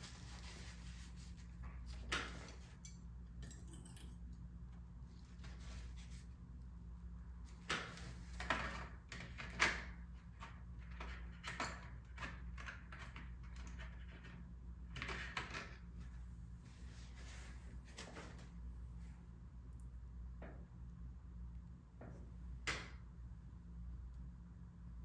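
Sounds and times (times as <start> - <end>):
paintbrush scraping on paper: 0.0 - 1.8
steady low hum: 15.7 - 25.0.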